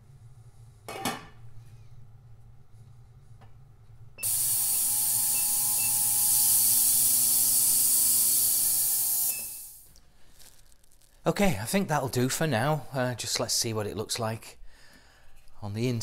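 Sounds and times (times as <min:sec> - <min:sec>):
ultrasonic cleaner hissing: 0:04.2 - 0:09.9.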